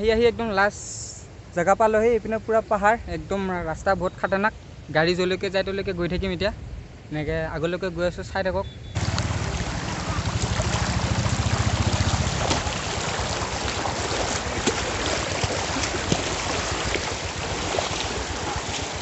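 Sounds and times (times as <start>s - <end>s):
stream rushing over pebbles: 9.0s - 19.0s.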